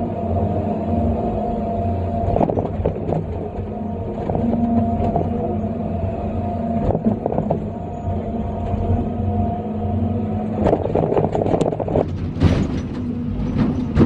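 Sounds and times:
excavator engine and hydraulics: 0.0s - 14.0s
clunks and rattles: 2.2s - 9.5s, 10.4s - 14.0s.

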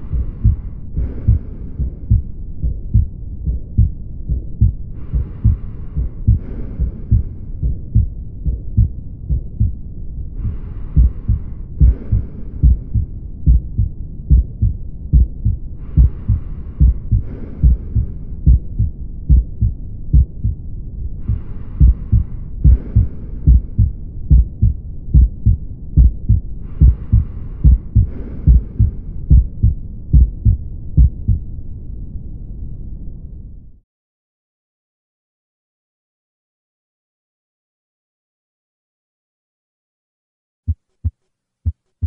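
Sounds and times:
heartbeat thuds: 0.0s - 9.8s, 10.4s - 20.6s, 21.2s - 31.4s, 40.7s - 42.0s
swooshing heart murmur: 0.0s - 31.5s.

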